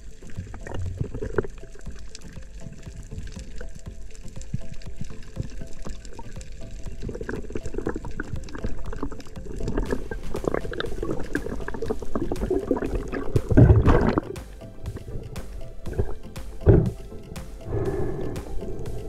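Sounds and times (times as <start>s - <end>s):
water gushing: 0.0s - 14.4s
water rushing and bubbling: 0.0s - 19.0s.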